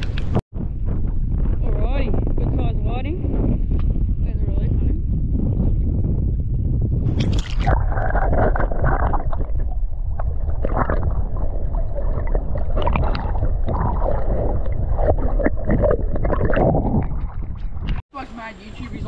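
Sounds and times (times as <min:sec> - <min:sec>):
wind rumble on microphone: 0:00.0 - 0:19.0
water sloshing and splashing: 0:07.1 - 0:18.0.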